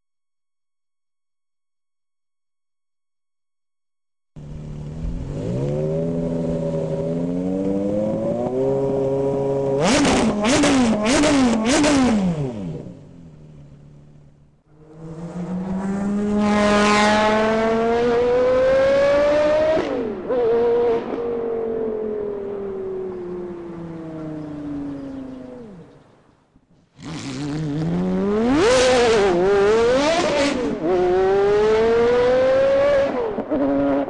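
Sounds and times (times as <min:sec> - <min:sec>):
car accelerating hard: 0:04.4 - 0:13.0, 0:14.7 - 0:26.0, 0:27.0 - 0:34.0
sports car engine revving: 0:04.4 - 0:21.2, 0:27.0 - 0:34.0.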